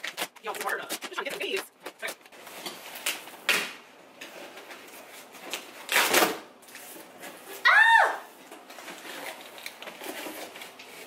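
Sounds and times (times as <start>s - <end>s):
cardboard ripping: 4.8s - 7.8s, 8.8s - 11.0s.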